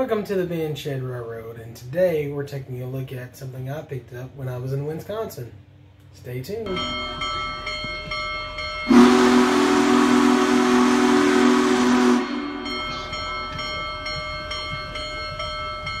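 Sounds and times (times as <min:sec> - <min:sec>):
railroad crossing bell ringing: 0:06.7 - 0:16.0
locomotive air horn: 0:08.9 - 0:13.2.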